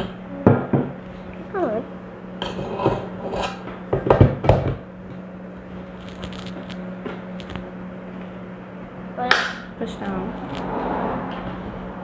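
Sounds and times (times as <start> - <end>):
steady low hum: 0.0 - 12.0
metal bowl clunking and scraping: 2.4 - 4.8.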